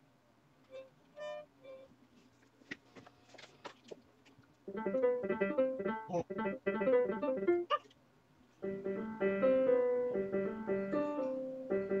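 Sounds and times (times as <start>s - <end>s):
digital piano chords: 4.7s - 7.8s, 8.6s - 12.0s.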